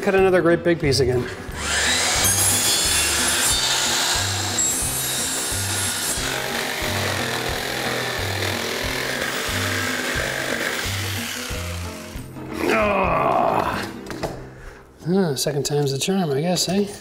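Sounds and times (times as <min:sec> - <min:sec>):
jigsaw cutting wood: 0:01.6 - 0:12.4.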